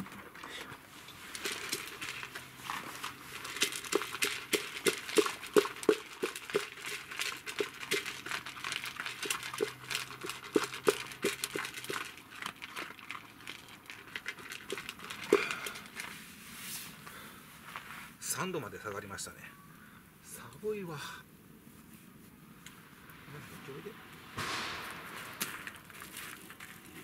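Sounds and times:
dogs crunching dry kibble: 0:00.0 - 0:16.2, 0:25.4 - 0:27.0.

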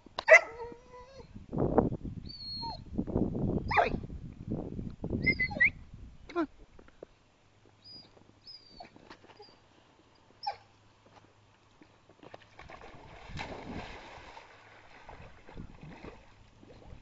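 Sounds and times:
dog whining: 0:05.2 - 0:05.8, 0:07.9 - 0:09.6
dog splashing in water: 0:12.3 - 0:17.0.

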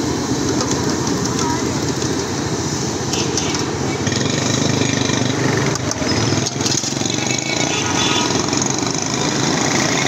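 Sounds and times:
street traffic: 0:00.0 - 0:10.0.

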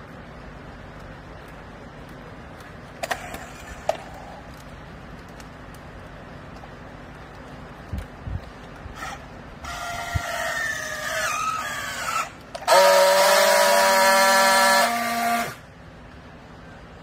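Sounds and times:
loud steady welding buzz: 0:00.0 - 0:16.2
strapping tool motor whine: 0:09.0 - 0:15.6.

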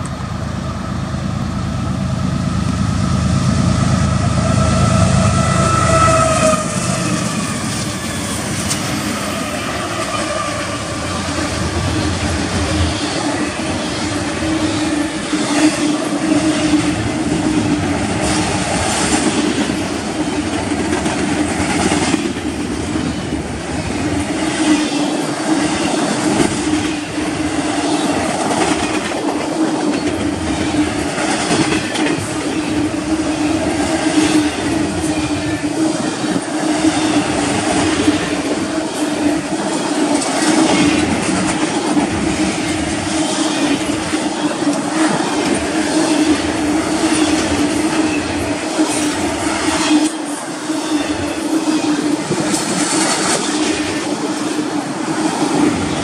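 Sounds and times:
diesel locomotive engine rumble: 0:00.0 - 0:56.0
ringing rail noise: 0:00.0 - 0:56.0
train wheels clattering over rail joints: 0:25.6 - 0:38.6.

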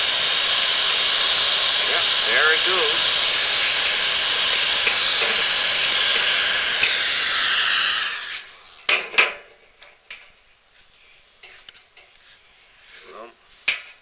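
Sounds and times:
heat gun blowing hot air: 0:00.0 - 0:09.0
sharp knocks: 0:04.4 - 0:07.0.

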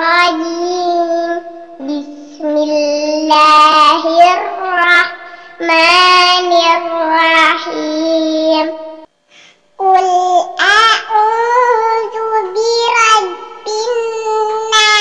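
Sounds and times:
girl chanting recitation: 0:00.0 - 0:09.1, 0:09.8 - 0:15.0.

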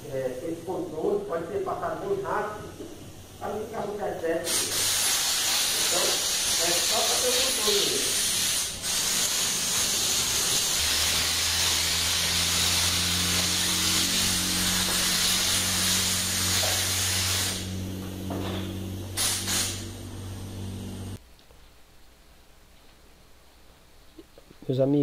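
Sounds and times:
spray gun hissing: 0:02.0 - 0:21.2
steady low hum: 0:06.2 - 0:24.6.

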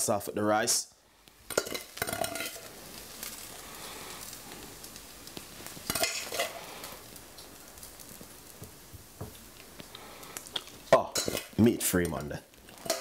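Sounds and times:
soft hiss: 0:00.0 - 0:13.0
metal utensil scraping pan: 0:01.5 - 0:02.7, 0:05.9 - 0:06.6, 0:11.1 - 0:11.5, 0:12.8 - 0:13.0.

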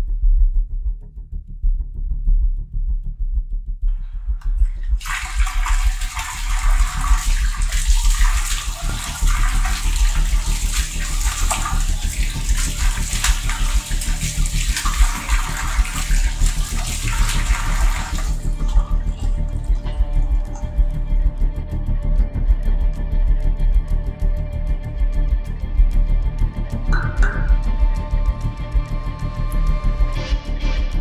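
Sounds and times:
water running from a tap: 0:04.5 - 0:20.9
water splashing over a hand: 0:04.9 - 0:20.7.

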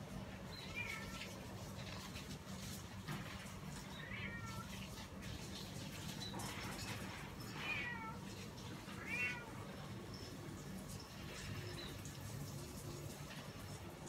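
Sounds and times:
cat meowing: 0:00.6 - 0:01.4, 0:03.9 - 0:04.8, 0:07.5 - 0:09.8.

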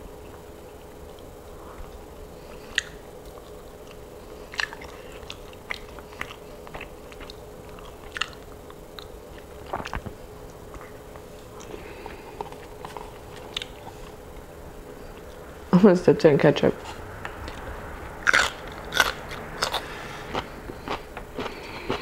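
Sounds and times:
faint steady hum: 0:00.0 - 0:22.0
person chewing and biting: 0:02.5 - 0:14.2, 0:17.4 - 0:22.0.

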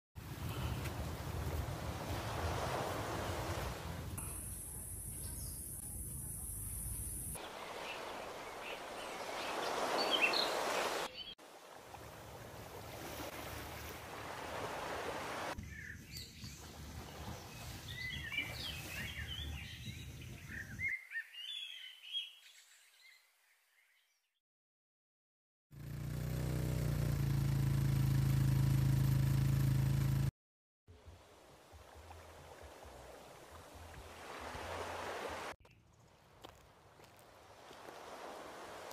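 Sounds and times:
small waves: 0:00.2 - 0:05.8, 0:06.6 - 0:15.6, 0:16.3 - 0:20.8, 0:30.9 - 0:38.9
wind: 0:00.2 - 0:24.1, 0:25.8 - 0:30.3, 0:30.9 - 0:38.9
birds chirping: 0:04.1 - 0:11.4, 0:15.6 - 0:24.3.

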